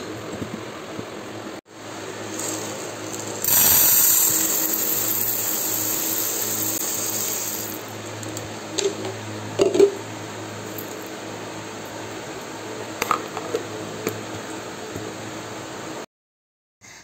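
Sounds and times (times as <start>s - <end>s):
lentils pouring into metal bowl: 2.0s - 8.0s.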